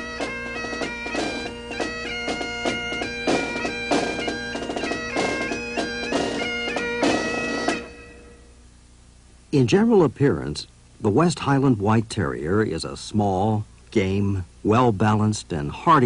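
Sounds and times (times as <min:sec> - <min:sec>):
bagpipe music: 0:00.0 - 0:08.6.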